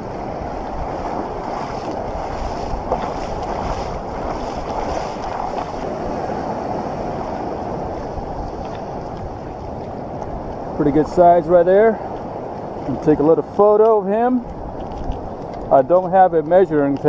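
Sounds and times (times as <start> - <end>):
small waves washing over sand: 0.0 - 17.0.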